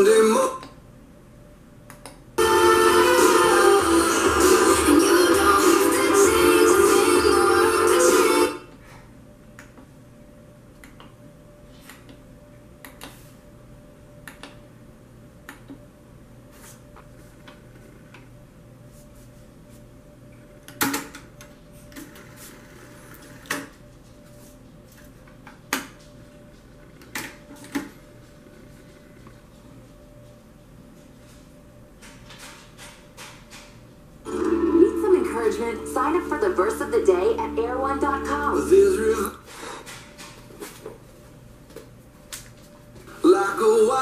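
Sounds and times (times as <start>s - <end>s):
radio music: 0.0s - 0.6s, 2.4s - 8.6s, 34.3s - 39.5s, 43.1s - 44.0s
faint steady hum: 0.0s - 32.2s, 33.9s - 44.0s.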